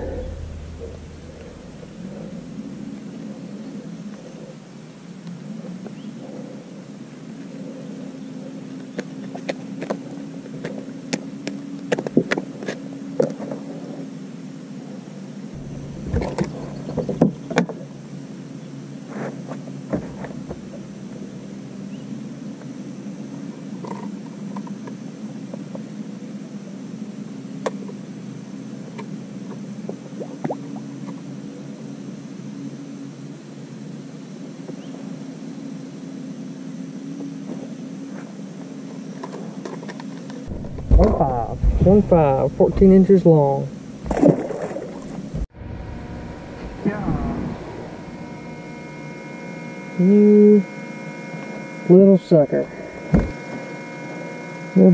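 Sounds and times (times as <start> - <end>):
electric trolling motor humming: 0.0 - 5.9, 15.6 - 19.0, 19.8 - 22.3, 40.5 - 54.9
gear knocking on boat deck: 40.5 - 43.0.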